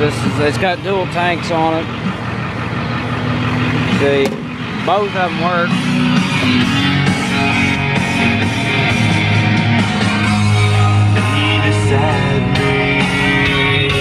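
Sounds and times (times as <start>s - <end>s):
rock music on radio: 3.8s - 14.0s.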